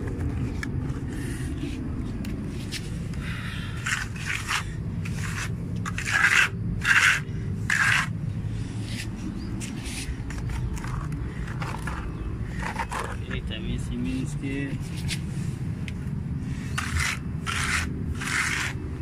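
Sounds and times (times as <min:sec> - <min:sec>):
low steady rumble: 0:00.0 - 0:19.0
scraping on rough concrete: 0:02.5 - 0:15.6, 0:16.4 - 0:19.0.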